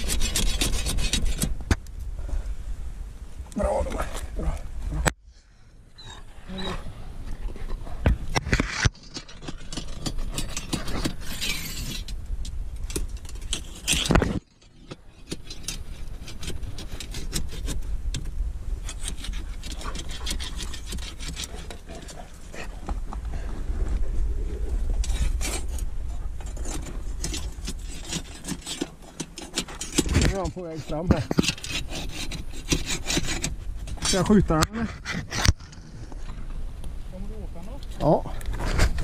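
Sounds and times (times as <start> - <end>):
rod scraping against rock: 0.0 - 1.8, 7.4 - 12.2, 12.8 - 18.2, 18.8 - 22.8, 24.9 - 36.4, 37.8 - 39.0.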